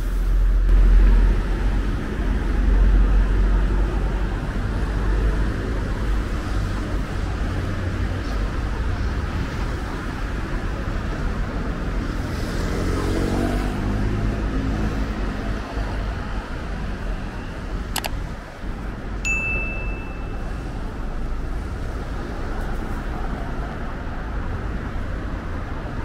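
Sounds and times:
traffic rumble: 0.0 - 26.0
short bell ding: 19.3 - 20.5.

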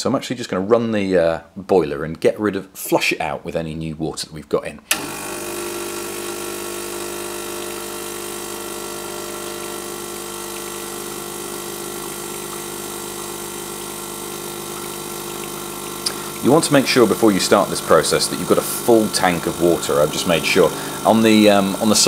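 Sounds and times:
espresso machine pump buzzing: 4.9 - 22.0
water streaming into a glass: 5.0 - 22.0.

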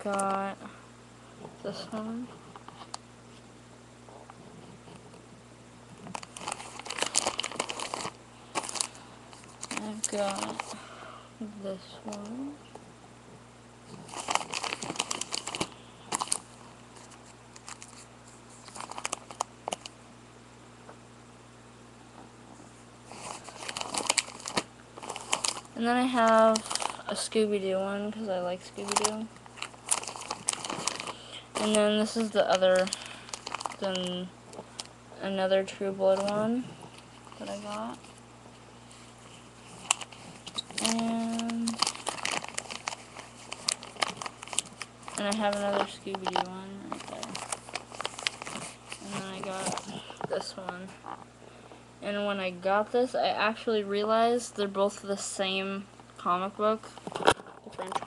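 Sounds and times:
plastic sleeves crinkling: 0.0 - 0.5, 5.9 - 10.9, 13.9 - 20.0, 23.1 - 51.3, 56.8 - 58.0
small sharp clicks and crackles: 14.0 - 20.0, 23.2 - 27.0, 39.7 - 51.3.

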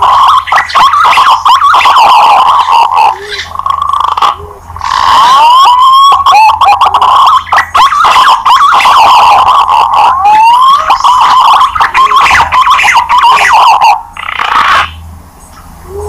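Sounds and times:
faint low cooing: 3.1 - 5.1, 15.6 - 16.0.

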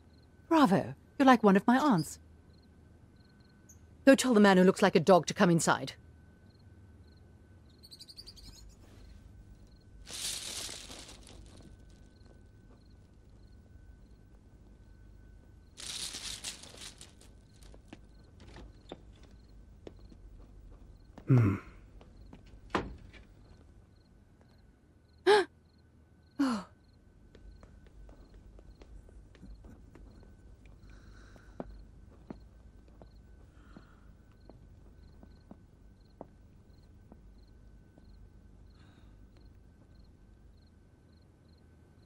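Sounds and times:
crickets chirping: 0.0 - 4.0, 6.0 - 42.0
person sighing: 21.3 - 21.8, 25.3 - 25.5, 26.4 - 26.7.

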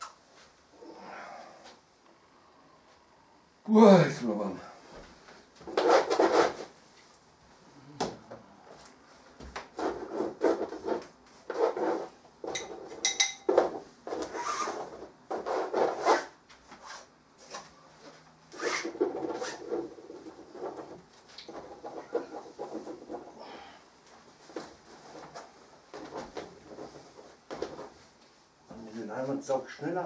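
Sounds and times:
paint tools scraping canvas: 5.7 - 6.7, 9.8 - 13.0, 13.7 - 17.8, 18.5 - 23.4.

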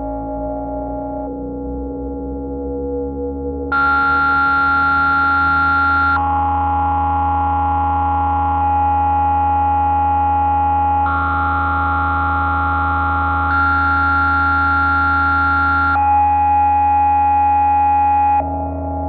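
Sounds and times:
steady low drone: 0.0 - 19.0
synthesizer chords: 0.0 - 19.0.

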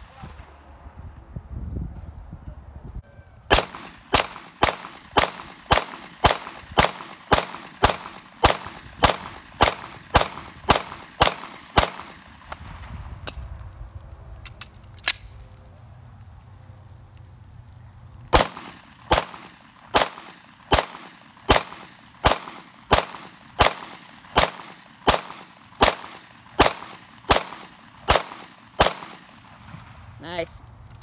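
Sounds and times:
pistol shots: 3.5 - 12.6, 18.3 - 29.6.

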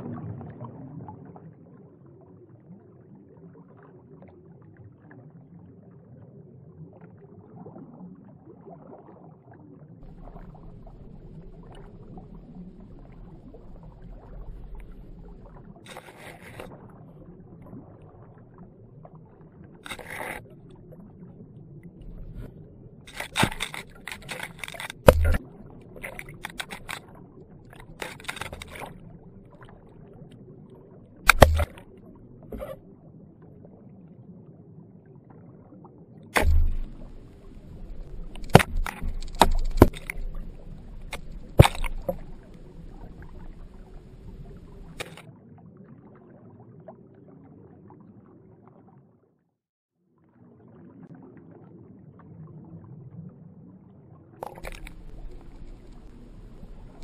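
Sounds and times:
muffled underwater river water: 0.0 - 57.0
sharp clicks and knocks: 23.1 - 25.4, 26.0 - 27.0, 27.8 - 28.9, 31.3 - 31.8, 36.4 - 42.4, 54.4 - 56.1.

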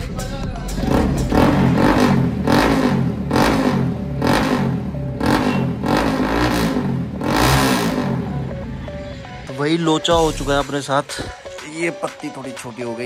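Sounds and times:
motorcycle engine revving: 0.7 - 9.0.

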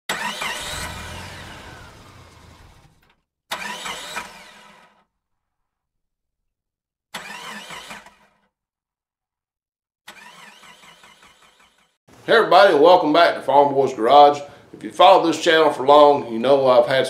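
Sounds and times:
car engine bursts: 0.1 - 5.0.

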